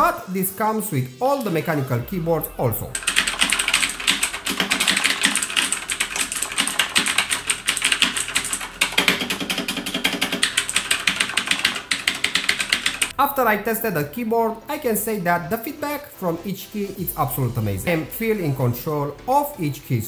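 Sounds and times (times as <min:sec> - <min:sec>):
clicky mechanical keyboard typing: 0:02.9 - 0:13.1.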